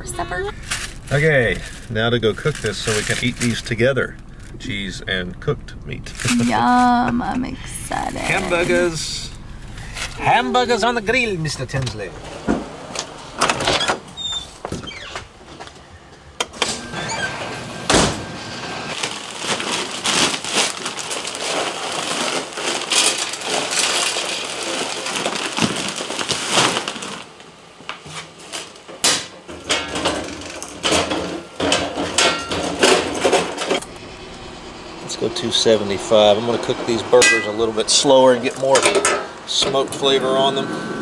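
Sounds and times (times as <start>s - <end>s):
wood pellets pouring into hopper: 0.6s - 3.6s, 19.0s - 27.3s.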